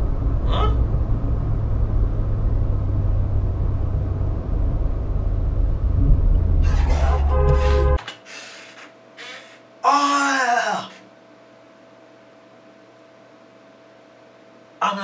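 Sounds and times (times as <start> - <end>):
car road and engine rumble: 0.0 - 8.0.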